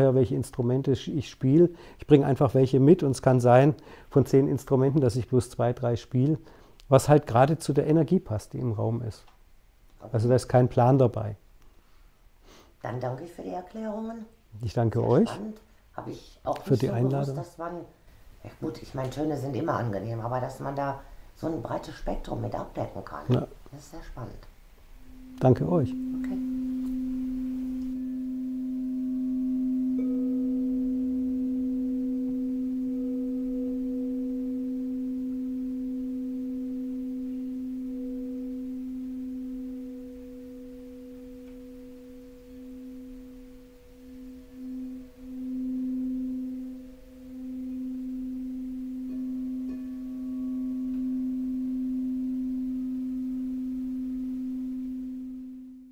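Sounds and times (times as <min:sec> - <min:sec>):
sustained ringing tone: 0:25.0 - 0:55.9.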